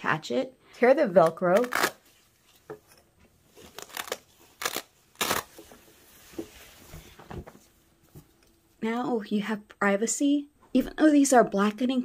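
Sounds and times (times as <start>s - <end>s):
velcro strips ripping apart: 1.2s - 2.2s, 3.6s - 5.6s.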